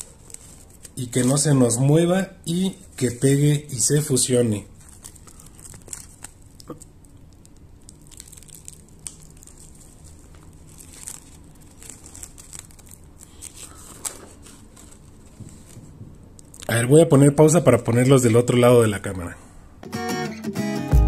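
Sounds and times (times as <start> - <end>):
plastic film crinkling: 0.0 - 17.0.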